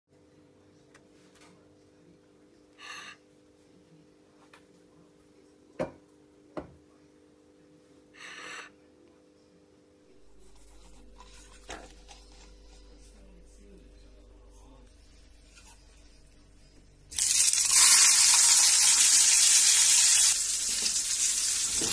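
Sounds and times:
faint steady hum: 0.1s - 21.9s.

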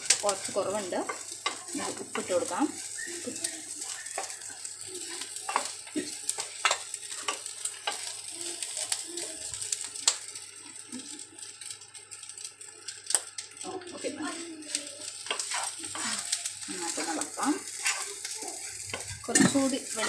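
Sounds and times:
spatula scraping pan: 0.0s - 8.1s, 14.7s - 20.0s
food sizzling in pan: 0.0s - 20.0s.

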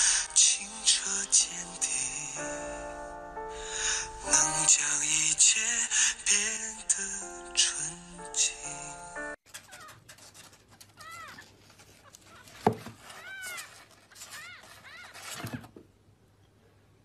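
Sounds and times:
scuffling: 9.6s - 15.7s.

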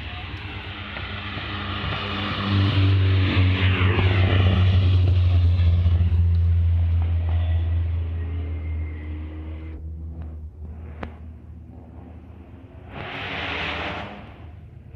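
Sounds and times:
rally car engine passing by: 0.2s - 14.9s.

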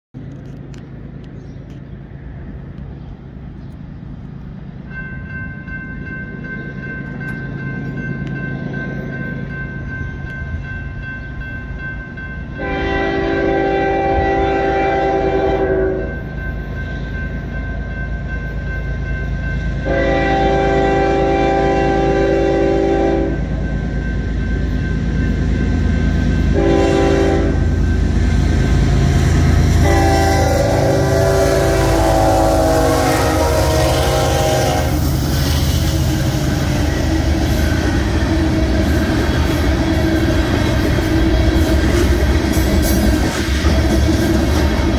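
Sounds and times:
locomotive engine rumble: 0.1s - 44.9s
crossing warning bell ringing: 4.1s - 44.9s
locomotive air horn blasts: 12.6s - 16.2s, 19.8s - 23.5s, 26.5s - 27.8s, 29.7s - 35.8s.

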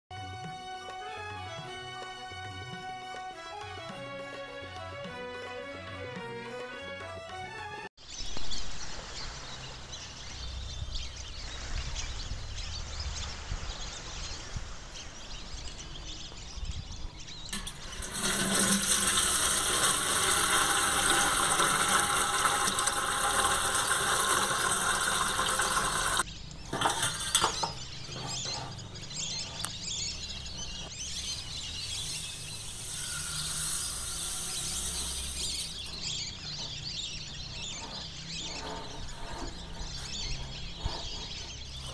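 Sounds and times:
tap water running into sink: 17.5s - 27.9s, 32.8s - 36.5s.

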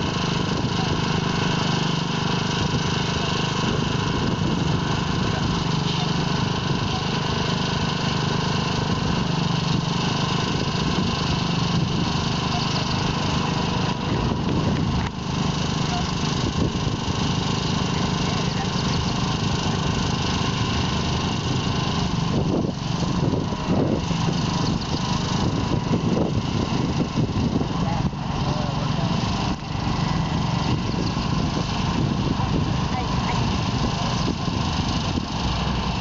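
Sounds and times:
truck engine humming: 0.0s - 36.0s.

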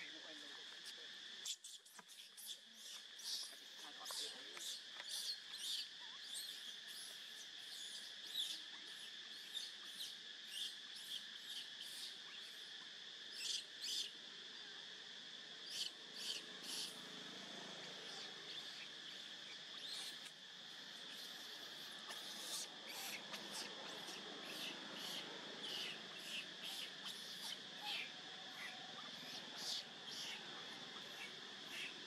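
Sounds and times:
insects droning: 0.0s - 32.0s
infant monkey squeaking: 1.4s - 3.6s, 4.6s - 12.6s, 15.7s - 17.0s, 19.7s - 20.3s, 21.0s - 32.0s.

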